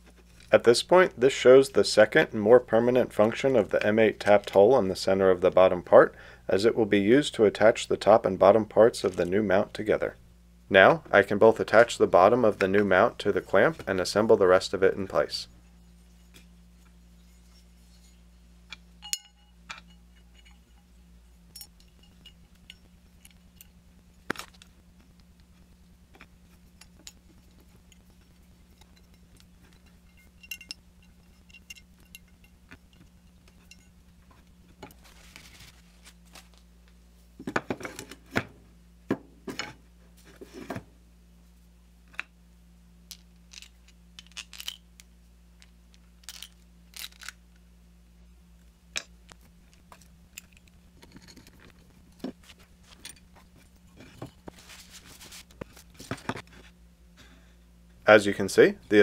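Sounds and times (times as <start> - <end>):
steady low hum: 0.0 - 59.0
small metal parts clicking and knocking: 21.5 - 35.0, 43.1 - 47.4, 49.0 - 54.5.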